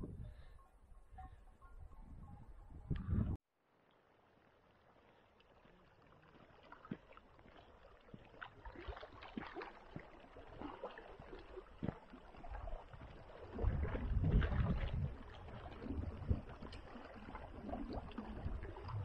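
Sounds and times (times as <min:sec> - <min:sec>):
wind buffeting microphone: 0:00.0 - 0:00.5, 0:01.2 - 0:03.4, 0:12.6 - 0:19.0.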